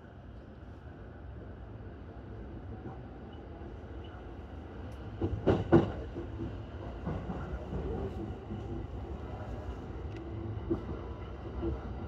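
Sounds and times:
train wheels rumbling on rail: 2.7s - 12.0s.

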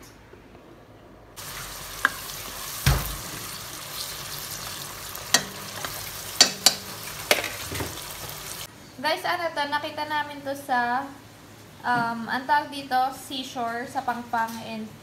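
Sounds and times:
tomatoes sizzling in oil: 1.4s - 8.7s.

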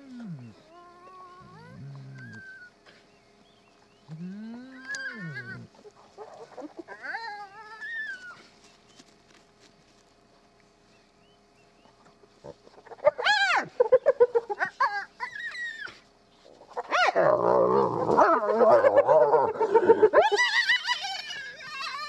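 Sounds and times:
hyenas squealing and growling: 0.4s - 2.8s, 4.6s - 8.4s, 12.8s - 16.0s, 16.6s - 22.0s.

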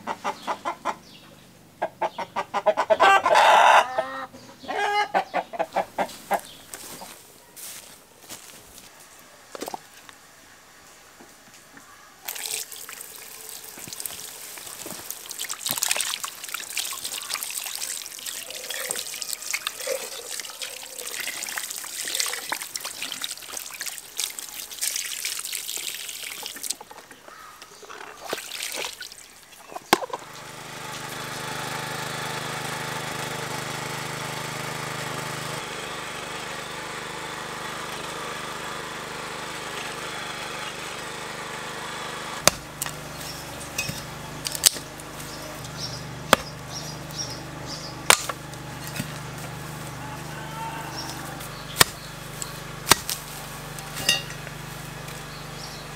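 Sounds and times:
small petrol engine running: 12.2s - 24.8s, 29.9s - 55.9s
water trickling and splashing: 12.2s - 27.2s, 27.8s - 30.1s.

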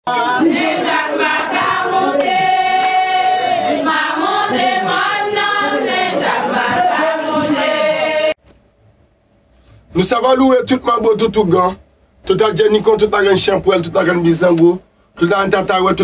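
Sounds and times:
choir singing: 0.1s - 8.4s
intro music: 4.6s - 8.4s.

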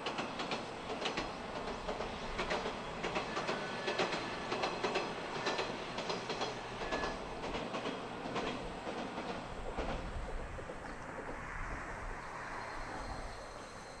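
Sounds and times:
train wheels clacking over rail joints: 0.0s - 11.9s
steady rushing noise: 7.4s - 14.0s.

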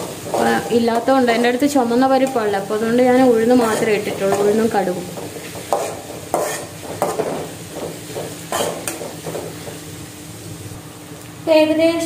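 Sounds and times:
vegetables sizzling in oil: 0.0s - 12.0s
metal spatula scraping a pan: 3.2s - 9.4s.

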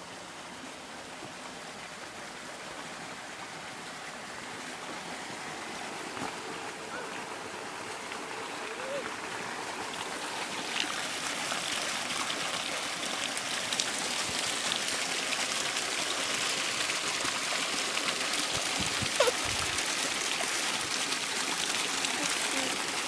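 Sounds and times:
creek rippling over rocks: 0.0s - 23.0s.

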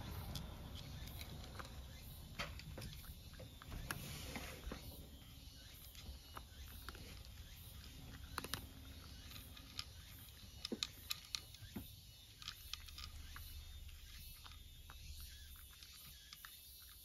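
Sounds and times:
cat eating crunching: 0.0s - 17.0s.

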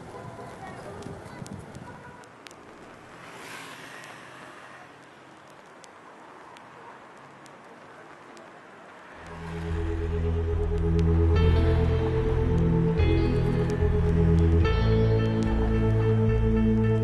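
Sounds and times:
faint outdoor ambient wash: 0.0s - 17.0s
faint ticks: 4.0s - 4.2s.

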